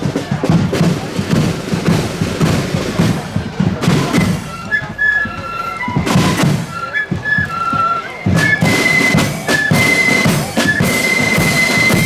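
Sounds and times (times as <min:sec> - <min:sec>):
cymbals: 0:00.0 - 0:12.0
snare drums: 0:00.0 - 0:12.0
flutes playing melody: 0:03.8 - 0:12.0.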